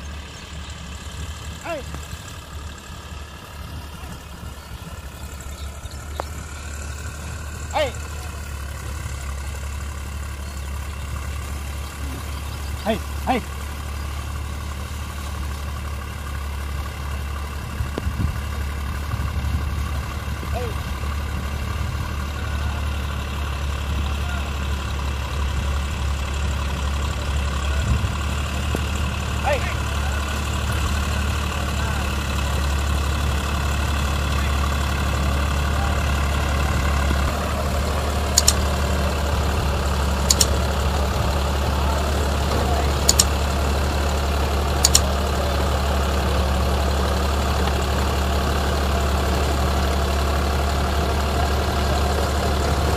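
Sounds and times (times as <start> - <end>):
tractor diesel engine running: 0.0 - 52.9
sharp double clicks: 38.3 - 38.8, 40.2 - 40.6, 43.0 - 43.4, 44.8 - 45.2.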